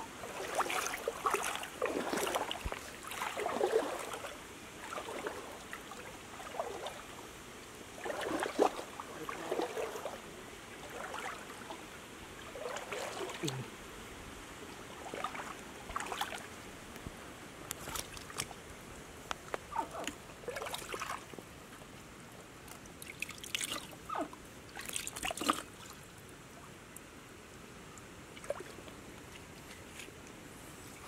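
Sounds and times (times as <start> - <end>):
stream water trickling: 0.0 - 31.0
hands splashing in mud and water: 0.2 - 5.5.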